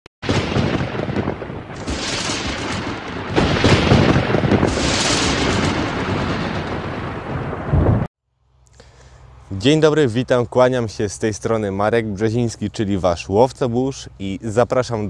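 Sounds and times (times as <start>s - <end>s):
thunder rolling and crashing: 0.2s - 8.1s.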